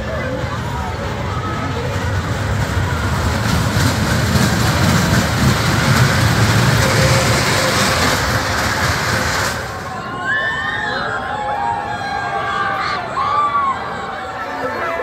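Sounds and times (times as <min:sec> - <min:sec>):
roller coaster wheels rumbling: 0:00.0 - 0:15.0.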